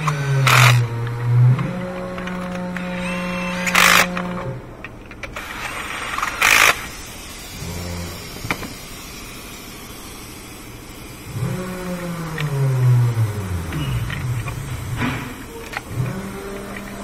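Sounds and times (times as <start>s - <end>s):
cordless ratchet zipping: 0.0s - 4.6s, 5.2s - 8.9s
low droning hum: 0.0s - 17.0s.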